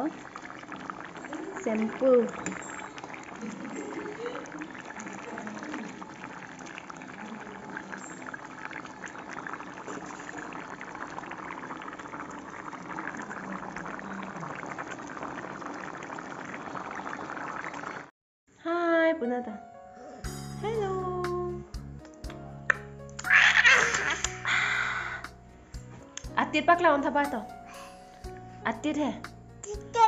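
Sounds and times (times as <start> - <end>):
curry bubbling and popping: 0.0 - 18.1.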